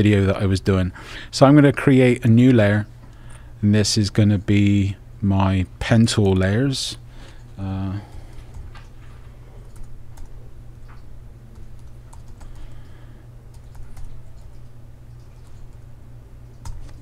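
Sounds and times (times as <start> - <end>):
steady low hum: 0.0 - 17.0
computer keyboard typing: 9.6 - 12.9, 13.5 - 15.8, 16.4 - 17.0.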